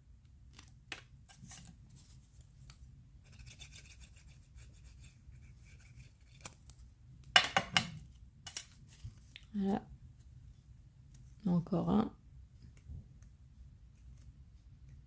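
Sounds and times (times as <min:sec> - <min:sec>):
crisp clicks of folding cardstock: 0:00.5 - 0:02.8, 0:06.2 - 0:07.3
faint paper rustling: 0:00.5 - 0:06.9, 0:08.5 - 0:09.5.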